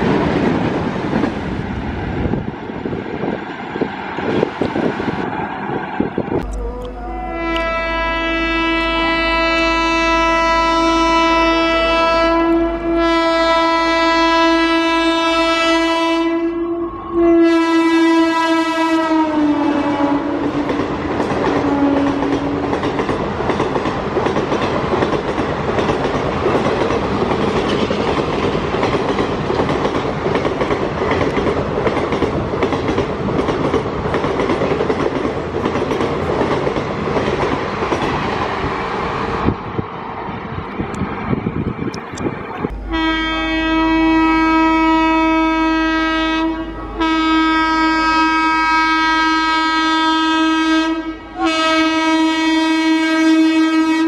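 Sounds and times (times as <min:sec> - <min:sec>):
train wheels clickety-clack: 0:00.0 - 0:01.6, 0:20.4 - 0:38.6
train horn blasts: 0:06.4 - 0:20.8, 0:21.5 - 0:22.8, 0:42.6 - 0:54.0.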